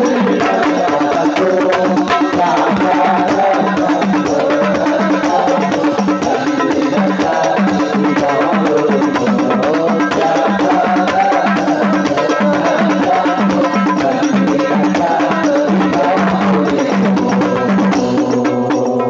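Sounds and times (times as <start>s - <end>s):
hand drum rhythm: 0.0s - 19.0s
voices singing devotional song: 0.0s - 19.0s.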